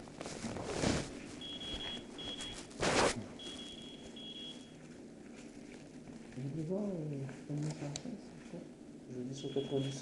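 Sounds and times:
clothing rustling against microphone: 0.0s - 7.8s
medical monitor beeps: 1.4s - 2.7s, 3.4s - 4.8s, 9.4s - 10.0s.

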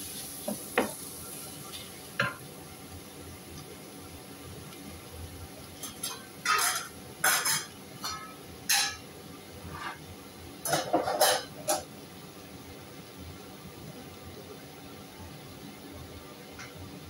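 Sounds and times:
food sizzling in a pot: 0.0s - 17.0s
pots and utensils clattering: 5.8s - 9.1s, 10.6s - 11.9s.

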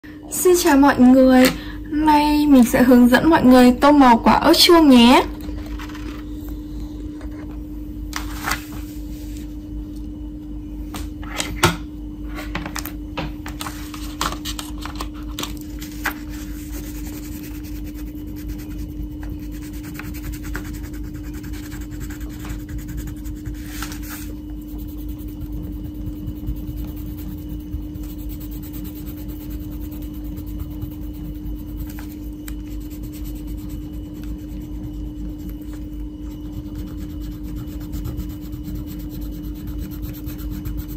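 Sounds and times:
low hum: 0.0s - 40.9s
crayon scratching on paper: 15.9s - 40.9s.

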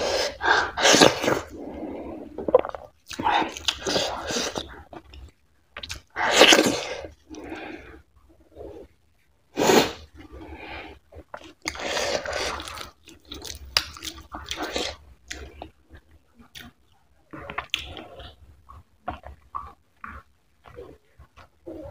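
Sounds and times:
wet smacking and chewing: 11.1s - 21.9s.

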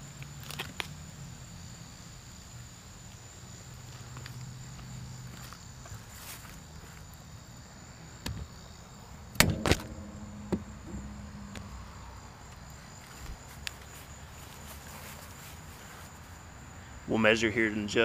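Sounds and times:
insects chirring: 0.0s - 18.0s
sharp knocks and clicks: 9.4s - 12.6s.

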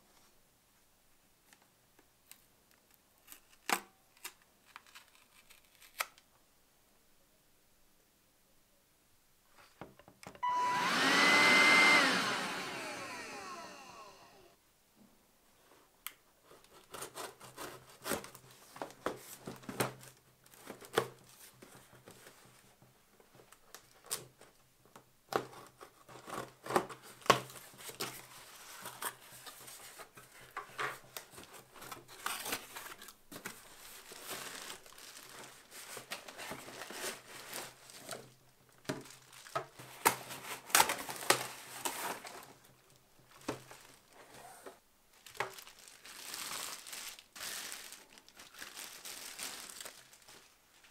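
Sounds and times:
plastic wrapping crinkling: 3.2s - 6.2s, 25.6s - 44.2s, 45.1s - 50.9s.

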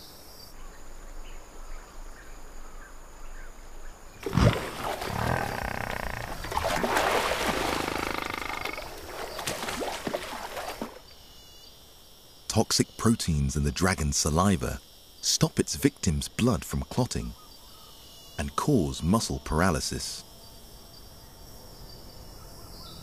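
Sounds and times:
water buffalo bellowing: 4.2s - 9.3s.

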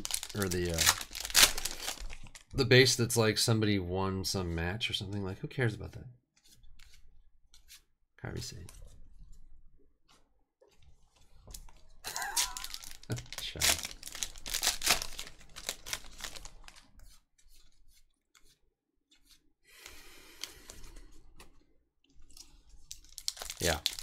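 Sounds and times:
foil wrapper tearing and crinkling: 0.0s - 2.5s, 12.1s - 16.9s, 22.8s - 24.0s.

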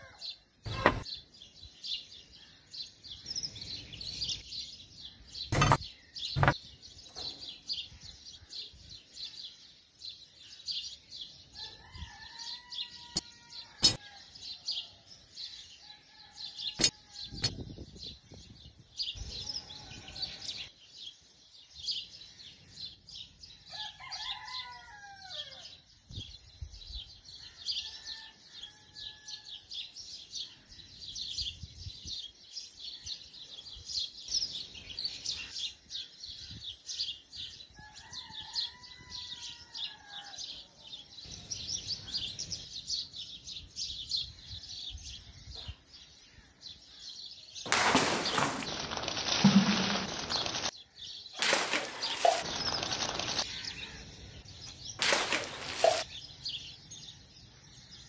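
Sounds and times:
small birds chirping: 0.0s - 24.6s, 30.2s - 58.0s
rooster crowing: 11.6s - 14.4s, 23.7s - 25.7s, 27.8s - 29.5s, 37.8s - 40.4s.

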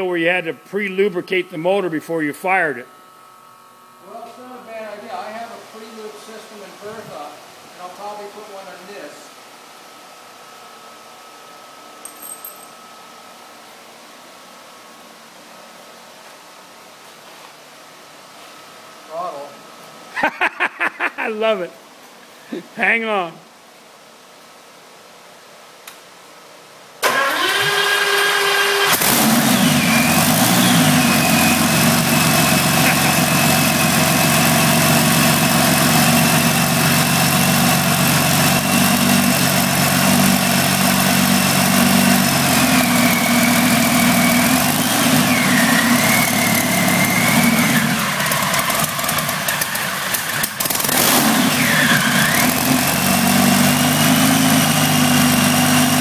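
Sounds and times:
aircraft engine starter cranking: 27.0s - 28.2s.

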